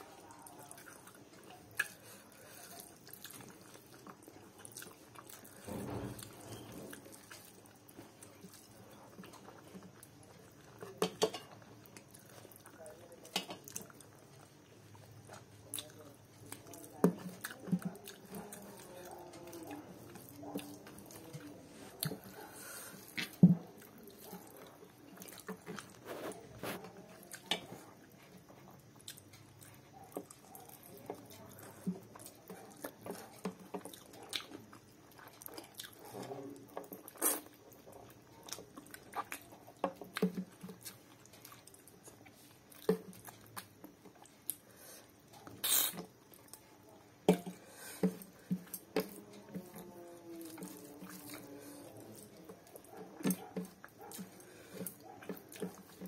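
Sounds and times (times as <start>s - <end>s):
wet chewing and lip smacks: 50.4s - 56.0s.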